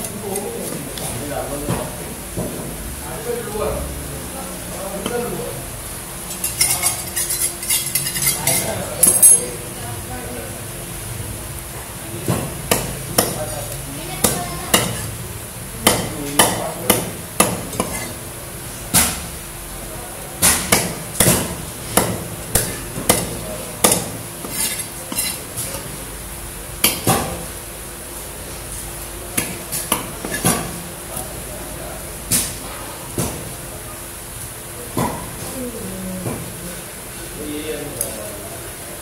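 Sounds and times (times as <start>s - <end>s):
cleaver scraping fish scales: 6.4s - 8.7s, 17.8s - 18.2s, 24.4s - 25.5s.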